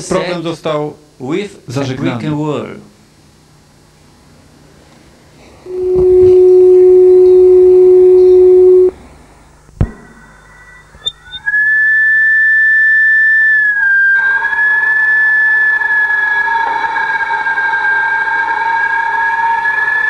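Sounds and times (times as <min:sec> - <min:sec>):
high whistle-like tone: 0:05.7 - 0:08.9, 0:10.1 - 0:20.0
low whistle-like tone: 0:05.7 - 0:08.9, 0:10.0 - 0:20.0.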